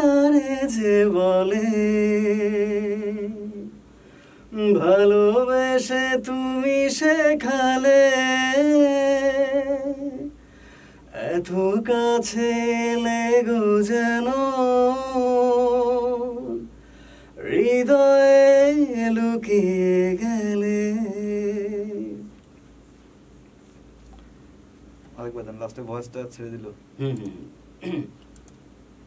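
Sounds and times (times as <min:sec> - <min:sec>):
man singing with vibrato: 0:00.0 - 0:03.7, 0:04.5 - 0:10.4, 0:11.1 - 0:16.7, 0:17.4 - 0:22.3.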